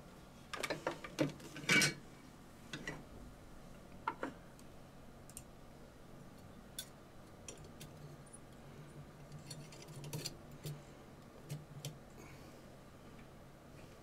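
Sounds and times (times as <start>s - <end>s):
low steady hum: 0.0s - 14.0s
clicks of small metal and glass parts: 9.3s - 10.8s.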